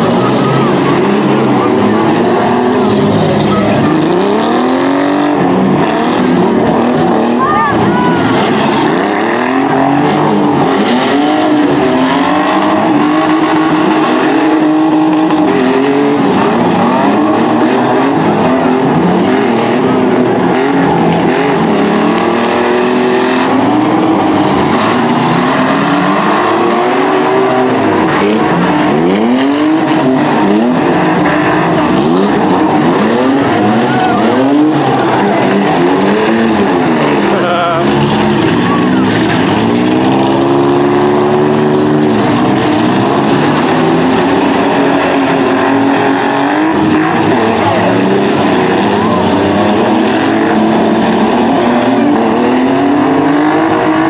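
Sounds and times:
truck engines revving: 0.0s - 54.0s.

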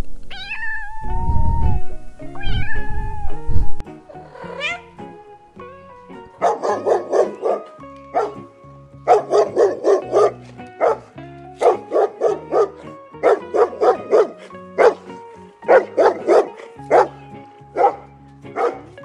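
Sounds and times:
dog barking: 6.4s - 8.5s, 9.1s - 17.2s, 17.8s - 18.0s, 18.6s - 19.0s.

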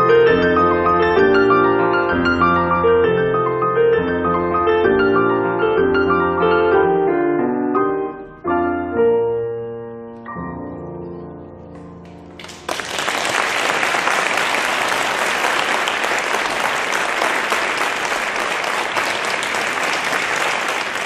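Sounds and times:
applause: 12.0s - 21.0s.

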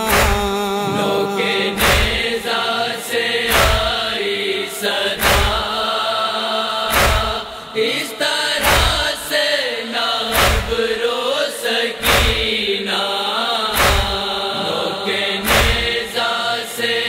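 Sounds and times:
rhythmic chest-beating thumps: 0.0s - 6.2s, 6.8s - 7.8s, 8.6s - 9.2s, 10.3s - 11.0s, 12.0s - 12.8s, 13.7s - 16.4s
voices chanting a refrain: 0.0s - 17.0s.

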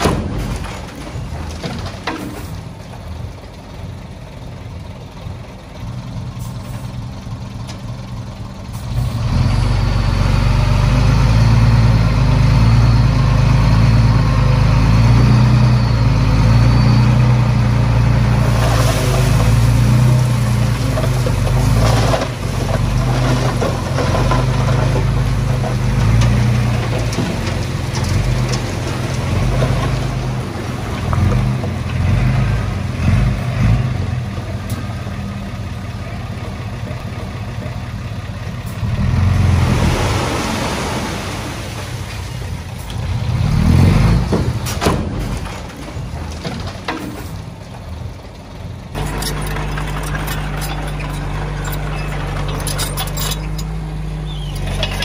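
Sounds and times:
clattering: 0.0s - 2.7s, 44.3s - 47.8s, 49.0s - 53.8s, 54.4s - 55.0s
diesel engine running: 0.0s - 55.0s.

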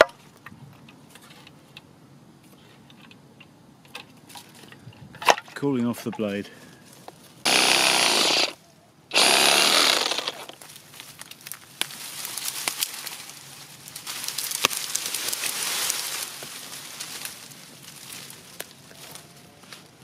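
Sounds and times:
sharp cracks: 7.4s - 13.1s
reciprocating saw cutting wood: 7.5s - 10.6s
rustling: 9.2s - 20.0s.

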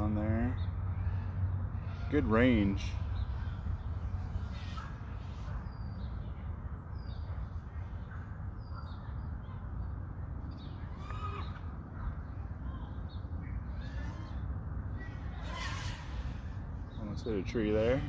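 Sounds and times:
harsh bird call: 0.0s - 6.3s, 10.6s - 18.0s
birds chirping: 0.0s - 18.0s.

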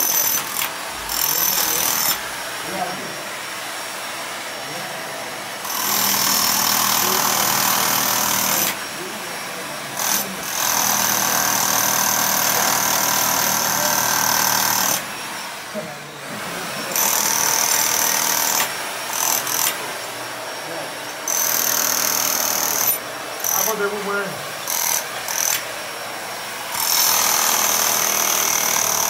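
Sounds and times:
demolition hammer chipping concrete: 0.0s - 2.4s, 5.6s - 15.2s, 16.4s - 20.0s, 21.0s - 25.8s, 26.7s - 29.0s.

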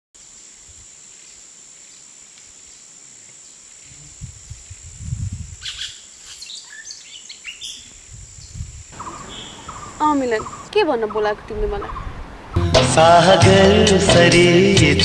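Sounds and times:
light hiss: 0.2s - 11.0s
low rumbles: 8.1s - 14.0s.

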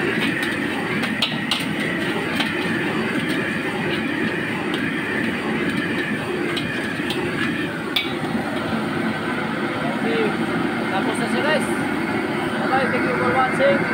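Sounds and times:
metal spatula scraping wok: 0.0s - 8.8s
gas burner and sizzling: 0.0s - 13.9s.

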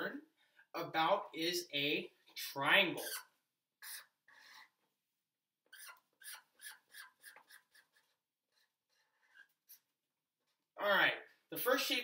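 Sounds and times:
marker scratching on paper: 2.3s - 4.2s, 5.7s - 9.9s.

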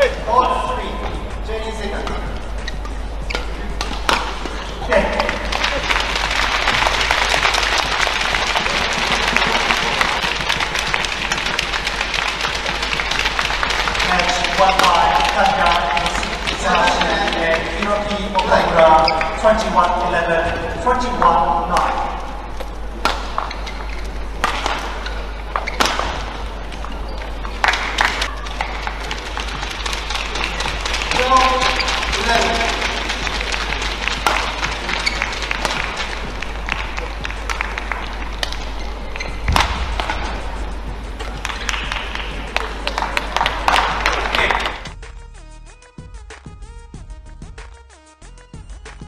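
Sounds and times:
racket hitting shuttlecock: 2.8s - 6.3s, 21.7s - 30.8s, 33.4s - 37.6s, 39.4s - 40.4s
crowd applauding: 3.8s - 20.1s, 27.5s - 40.5s, 41.2s - 44.9s.

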